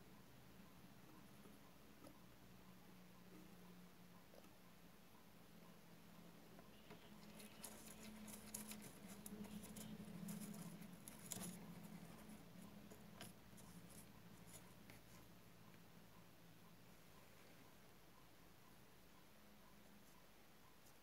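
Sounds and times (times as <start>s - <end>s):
low steady hum: 0.0s - 21.0s
paintbrush scratching in paint pans: 6.6s - 15.3s.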